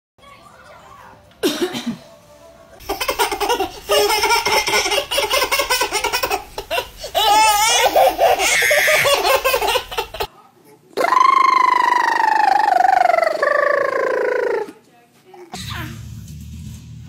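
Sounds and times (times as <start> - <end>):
babies giggling: 2.8 - 10.3
baby squealing: 2.9 - 10.3, 11.0 - 14.8.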